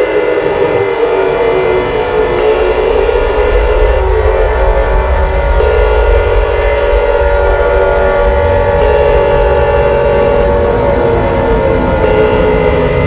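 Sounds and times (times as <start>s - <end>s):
emergency alert alarm chord: 0.0s - 13.0s
deep rumble: 0.5s - 13.0s.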